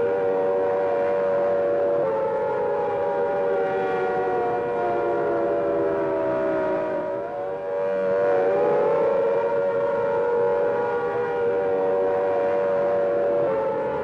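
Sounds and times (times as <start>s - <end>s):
air-raid siren wailing: 0.0s - 14.0s.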